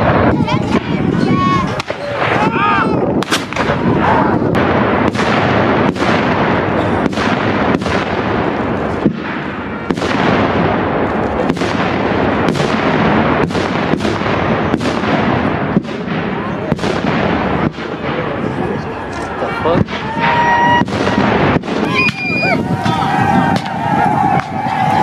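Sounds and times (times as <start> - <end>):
cannons firing: 0.0 - 25.0.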